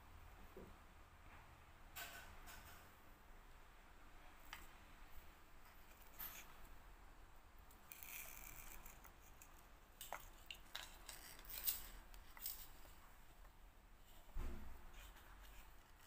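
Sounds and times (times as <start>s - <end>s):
soft rubbing and rustling: 7.9s - 16.0s.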